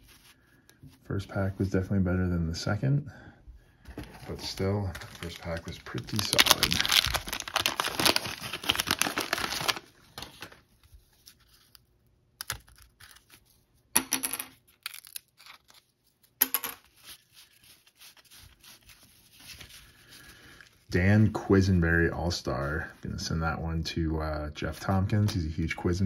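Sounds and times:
cards rustling and clicking: 3.9s - 13.6s, 14.2s - 20.8s
wax paper wrapper tearing: 4.7s - 10.6s, 14.7s - 16.1s.

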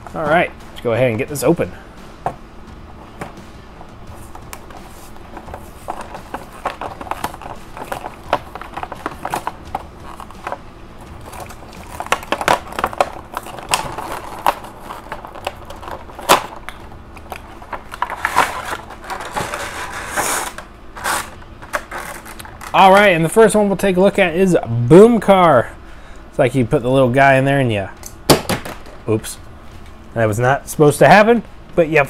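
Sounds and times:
plastic crackling and crinkling: 4.6s - 20.6s, 21.2s - 23.0s
cardboard ripping: 17.7s - 22.4s.

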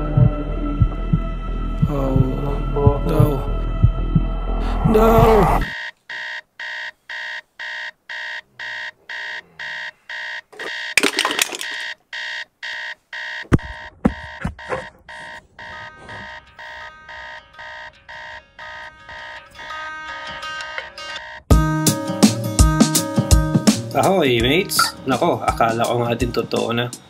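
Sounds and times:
phone alarm beeping: 5.6s - 21.5s, 24.8s - 25.0s.

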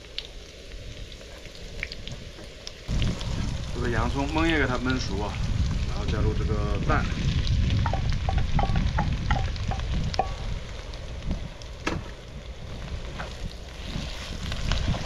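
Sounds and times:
egg and onion sizzling in wok: 0.0s - 15.0s
low rumble: 2.9s - 15.0s
sharp knock on pan: 7.8s - 10.4s.

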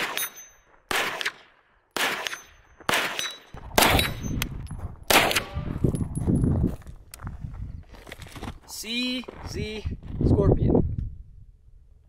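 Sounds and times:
pistol shots with echo: 0.0s - 4.4s, 5.1s - 5.7s.

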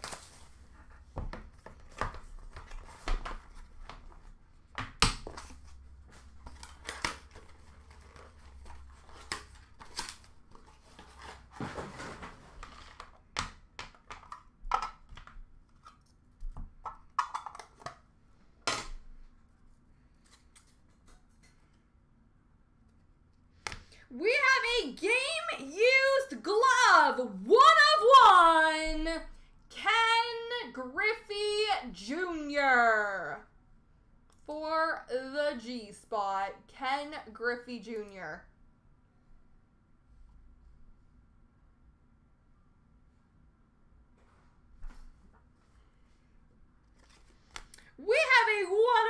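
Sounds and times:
cardboard and wrapper rustling: 0.0s - 4.4s, 5.2s - 13.2s.

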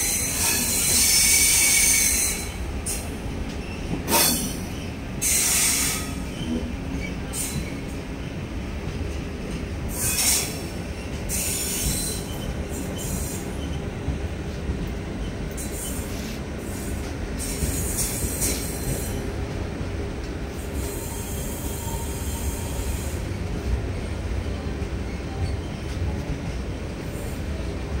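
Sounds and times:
high-pitched wheel squeals: 0.0s - 2.6s, 20.8s - 23.2s
train wheels rumbling on track: 0.0s - 28.0s.

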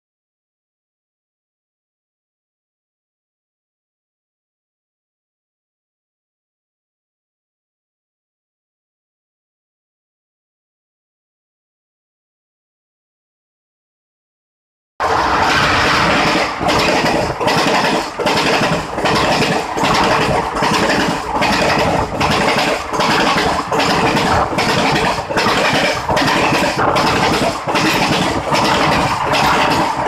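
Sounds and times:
train wheels clattering on rails: 15.0s - 30.0s.

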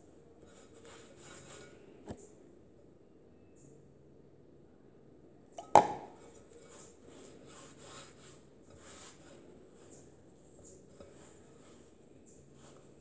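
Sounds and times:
plastic cup knock: 5.6s - 6.1s
hands mixing wet dough: 5.6s - 13.0s.

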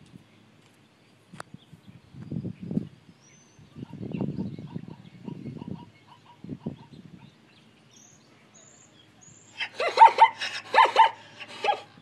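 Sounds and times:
zebra barking: 9.6s - 11.9s.

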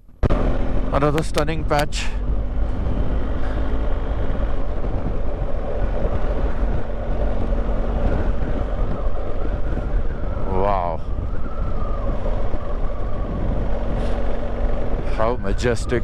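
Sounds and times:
motorcycle engine running: 0.0s - 10.3s
wind on microphone: 0.2s - 16.0s.

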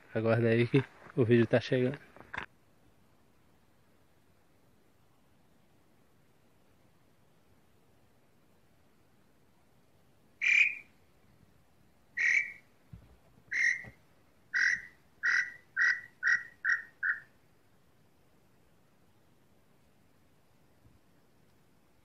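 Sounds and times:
bird whistled call: 10.4s - 10.9s, 12.2s - 12.7s, 13.5s - 17.3s.

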